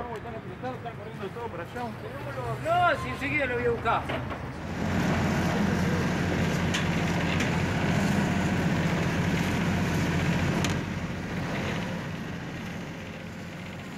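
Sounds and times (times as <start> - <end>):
boat engine low rumble: 3.7 - 13.9.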